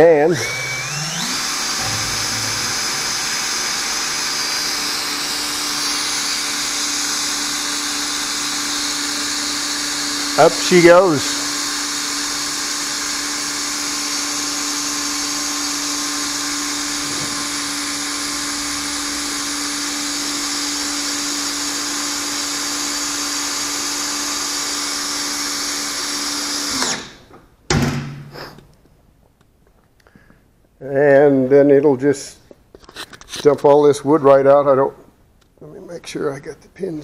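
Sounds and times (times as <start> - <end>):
cordless drill running: 0.0 - 27.3.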